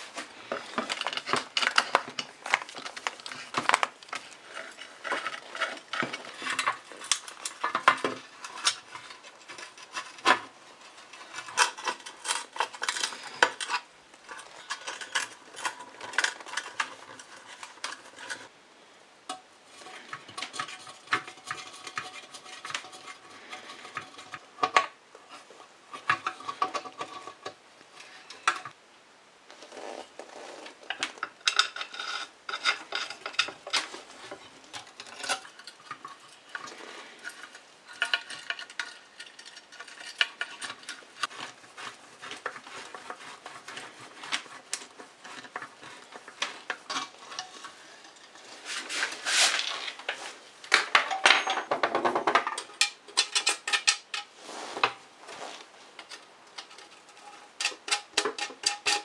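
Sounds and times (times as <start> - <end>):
metal parts clinking and scraping: 0.0 - 18.5, 30.9 - 54.3, 55.9 - 59.0.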